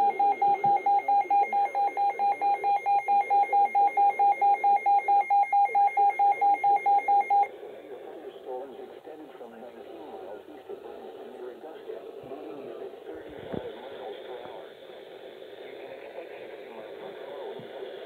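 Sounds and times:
weather radio rapid beeping alarm: 0:00.0 - 0:07.5.

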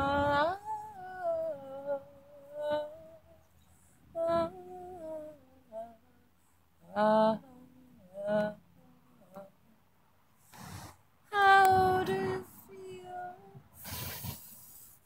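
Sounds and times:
woman humming slow tune: 0:00.0 - 0:03.5, 0:11.3 - 0:13.7.

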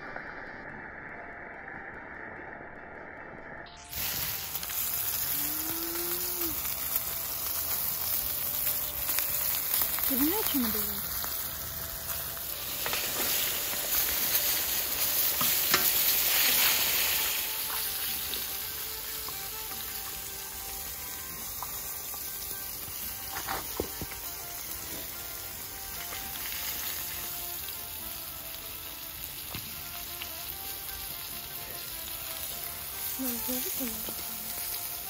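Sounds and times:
meat sizzling in oil: 0:03.8 - 0:35.0.

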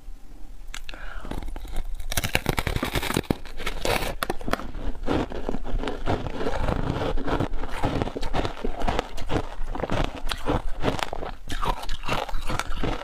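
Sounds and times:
chewing ice: 0:00.7 - 0:13.0
crunching frozen ice block: 0:01.1 - 0:13.0.

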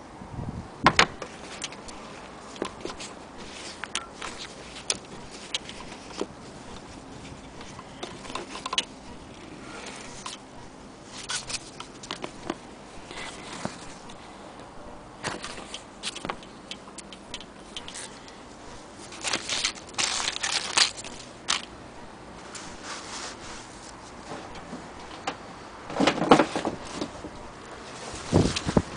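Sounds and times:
fabric rustling: 0:01.3 - 0:14.2, 0:17.9 - 0:21.7, 0:22.4 - 0:25.2.

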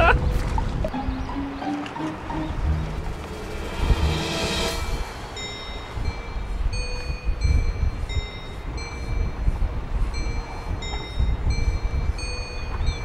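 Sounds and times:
wind buffeting microphone: 0:00.0 - 0:13.0
chime-like high notes melody: 0:00.9 - 0:13.0.

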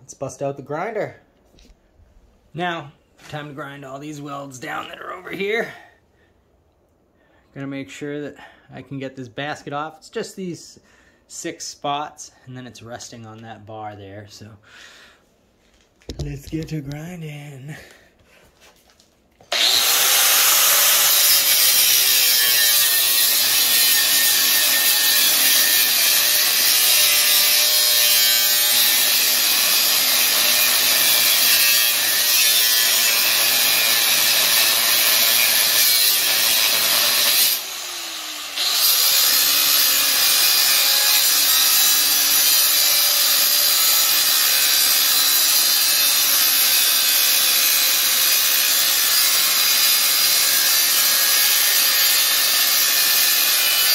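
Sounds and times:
angle grinder grinding metal: 0:19.5 - 0:53.9.

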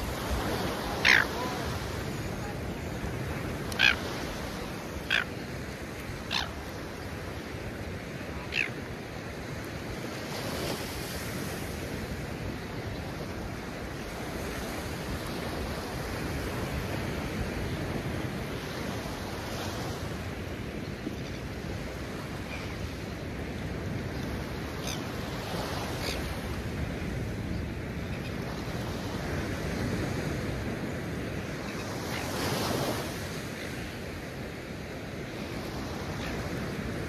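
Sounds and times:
ocean surf breaking: 0:00.0 - 0:20.5
wind: 0:00.0 - 0:37.0.

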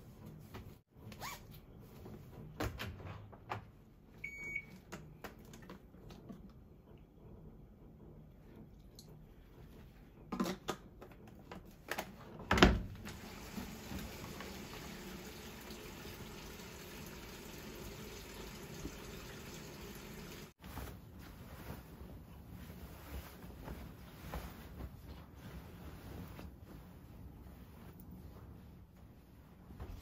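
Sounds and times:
water filling washing machine drum: 0:13.0 - 0:20.6.

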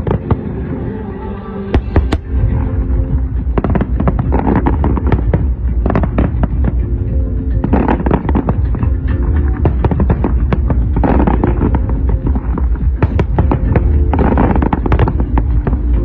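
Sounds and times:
low rumble: 0:00.0 - 0:16.0
music: 0:00.0 - 0:16.0
fireworks bangs: 0:07.6 - 0:16.0.

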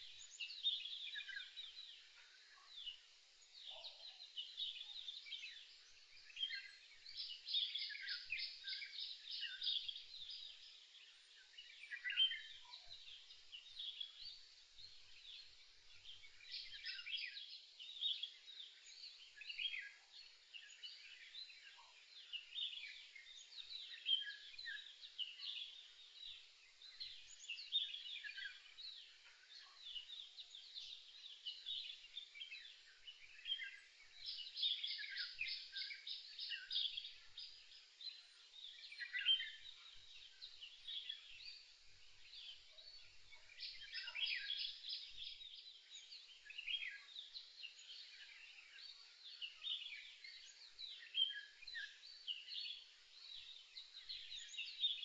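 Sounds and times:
small birds chirping and trilling: 0:00.0 - 0:55.0.

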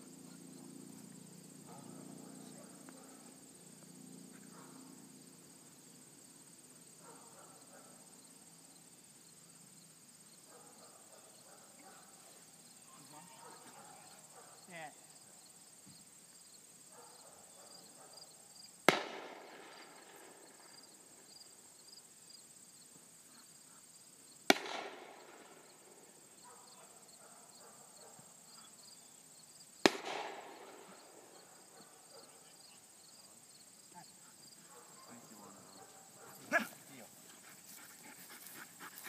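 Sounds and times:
faint insect chirping: 0:00.0 - 0:39.0
distant gunshots with echo: 0:18.9 - 0:20.5, 0:24.5 - 0:25.6, 0:29.8 - 0:31.4.

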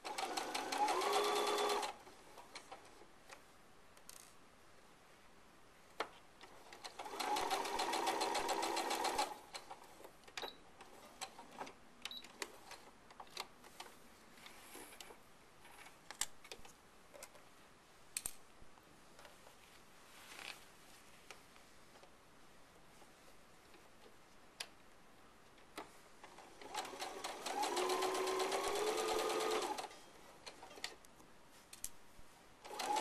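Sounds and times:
sewing machine stitching: 0:00.0 - 0:02.0, 0:06.8 - 0:09.5, 0:26.3 - 0:29.9, 0:32.6 - 0:33.0.

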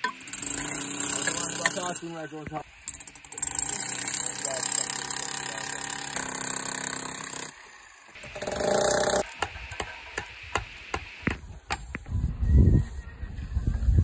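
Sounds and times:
angle grinder cutting concrete: 0:00.3 - 0:02.5, 0:03.3 - 0:09.2.

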